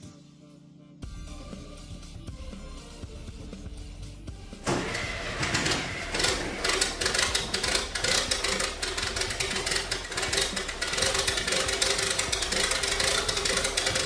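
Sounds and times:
diesel truck engine starting: 0:04.6 - 0:14.0
diesel engine clatter: 0:05.4 - 0:14.0.

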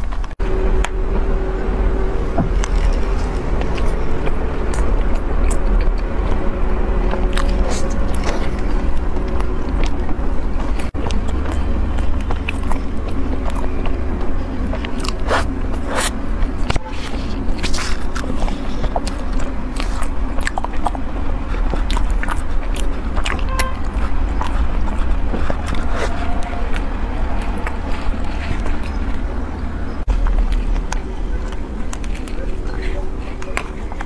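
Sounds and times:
chewing flaky pastry: 0:00.0 - 0:34.0
low hum: 0:00.0 - 0:34.0.

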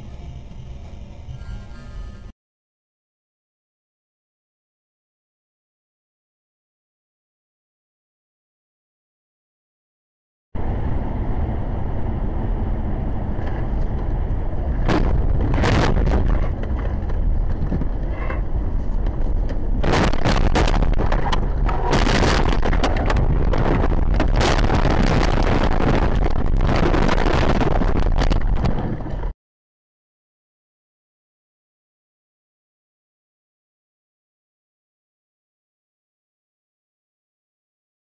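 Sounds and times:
car road noise: 0:10.6 - 0:29.3.

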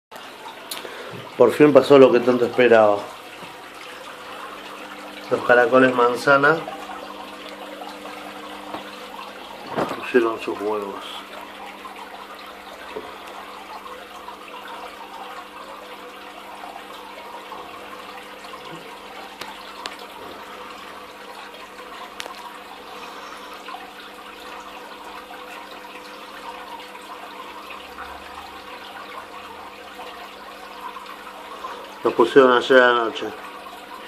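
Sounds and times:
aquarium water splashing: 0:00.1 - 0:34.0.

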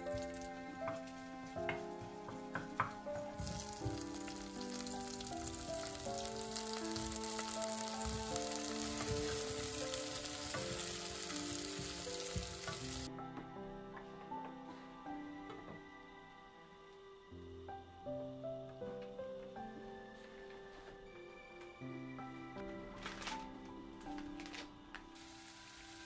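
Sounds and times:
soft background music: 0:00.0 - 0:26.0
vegetables sizzling in oil: 0:03.4 - 0:13.1, 0:25.2 - 0:26.0.

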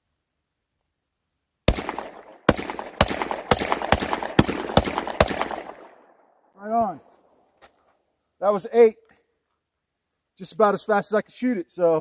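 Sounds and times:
shotgun shots with echo: 0:01.7 - 0:06.2.

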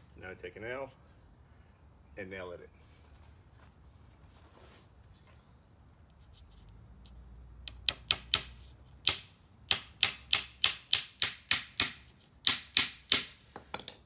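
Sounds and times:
hammer hitting nail into wood: 0:07.6 - 0:13.9.

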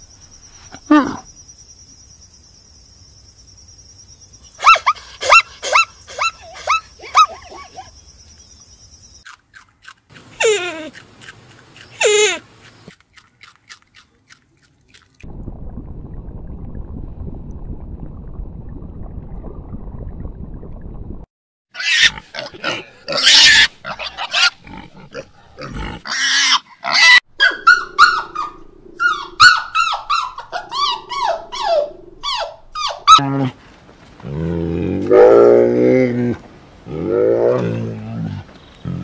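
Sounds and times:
low underwater rumble: 0:15.3 - 0:21.3
piglets squealing and squeaking: 0:21.8 - 0:24.6, 0:26.1 - 0:33.2.

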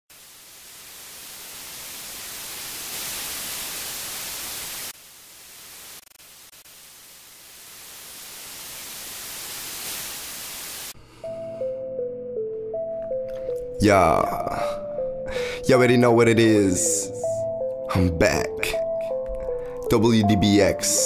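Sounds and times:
white noise static hiss: 0:00.1 - 0:11.0.

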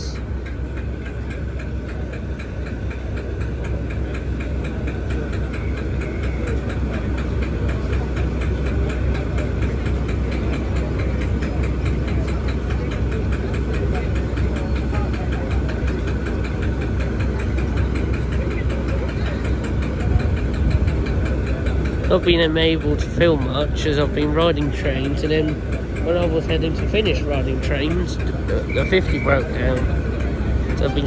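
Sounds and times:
diesel locomotive engine idling: 0:00.0 - 0:31.0.

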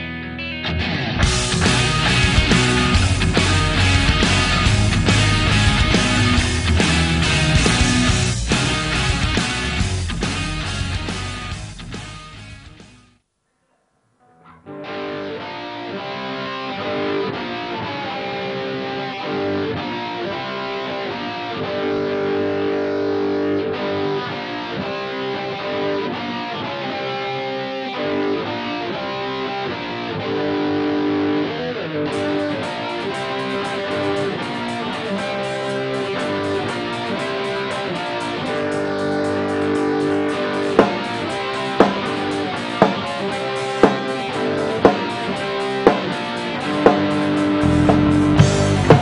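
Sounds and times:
distorted electric guitars: 0:00.0 - 0:13.2, 0:14.0 - 0:49.0
drum beat with cymbals: 0:33.2 - 0:49.0.

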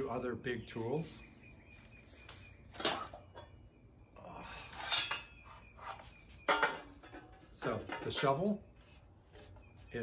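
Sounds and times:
yard tools clattering: 0:02.7 - 0:03.7, 0:04.3 - 0:08.8.

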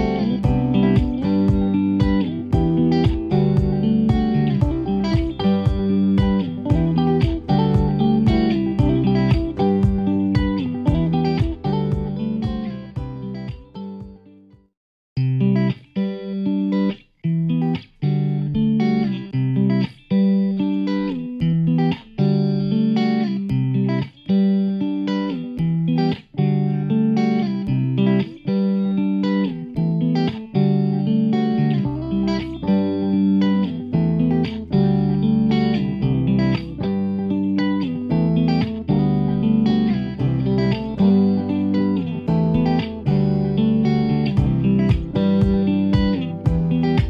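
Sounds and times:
low bass line: 0:00.0 - 0:14.2, 0:31.7 - 0:33.2, 0:33.8 - 0:37.3, 0:38.0 - 0:47.0
plucked guitar music: 0:00.0 - 0:47.0.

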